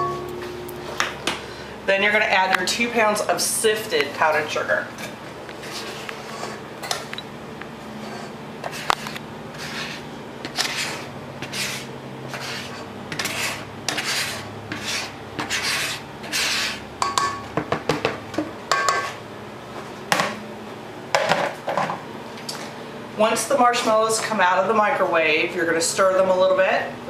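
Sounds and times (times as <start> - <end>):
sugar swishing into metal bowl: 8.0 - 16.8.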